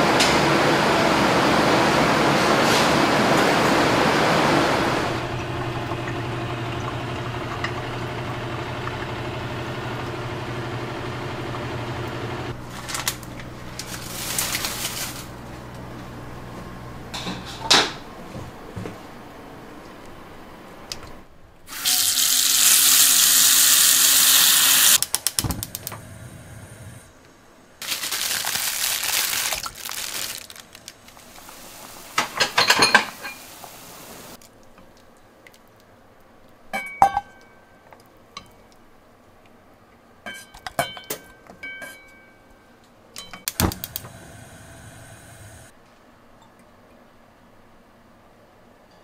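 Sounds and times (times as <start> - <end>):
cookware clinking and knocking: 32.2 - 33.4.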